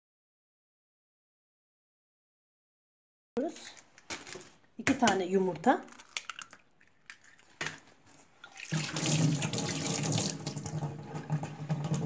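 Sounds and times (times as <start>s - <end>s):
tap water running: 8.4s - 12.0s.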